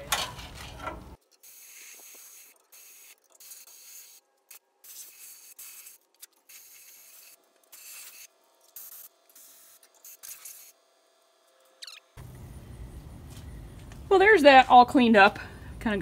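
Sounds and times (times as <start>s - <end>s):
grinder on metal: 0.3s - 12.2s.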